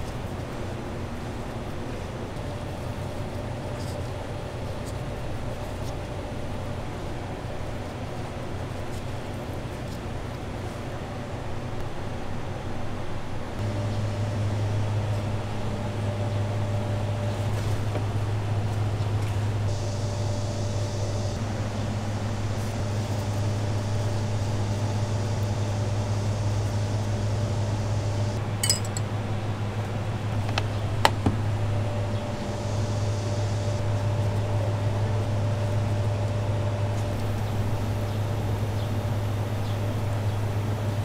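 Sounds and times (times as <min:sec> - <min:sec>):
exhaust fan humming: 0:00.0 - 0:41.0
ringing clink: 0:28.6 - 0:29.0.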